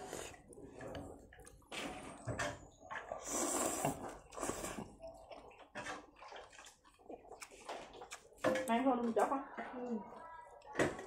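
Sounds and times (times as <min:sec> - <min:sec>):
person slurping noodles: 0:00.0 - 0:01.3, 0:03.0 - 0:05.0.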